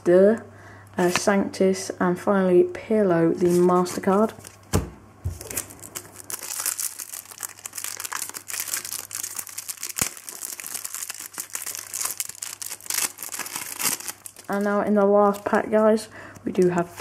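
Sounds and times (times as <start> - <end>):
foil packet crinkling: 5.4 - 17.0.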